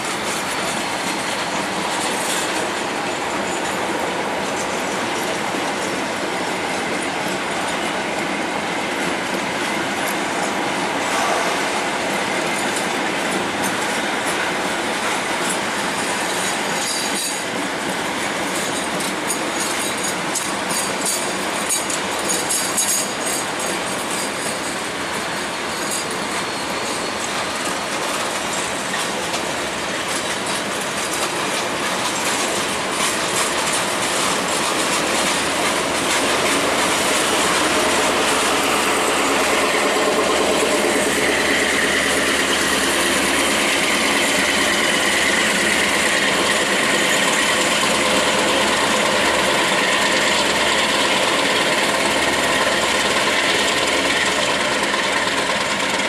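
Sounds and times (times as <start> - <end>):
train wheels rumbling on rails: 0.0 - 56.0
wheels clacking over rail joints: 0.0 - 56.0
high wheel squeal: 25.3 - 27.4.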